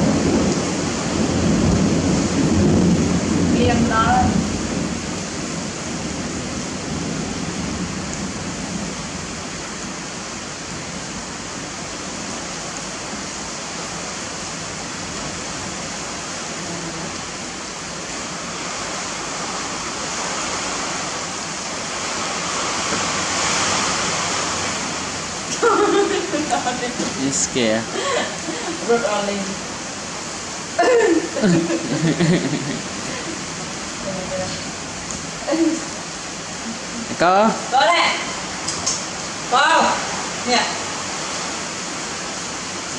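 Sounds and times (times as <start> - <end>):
heavy rain pouring: 0.0 - 42.9.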